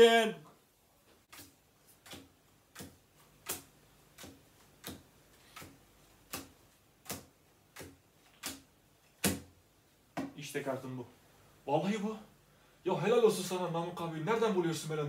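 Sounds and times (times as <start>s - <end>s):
playing cards slapping on table: 1.3s - 9.6s.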